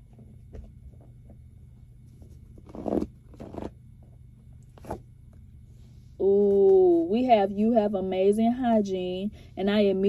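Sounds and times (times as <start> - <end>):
low steady hum: 0.0 - 10.0
cards and blanket rustling: 2.0 - 3.7.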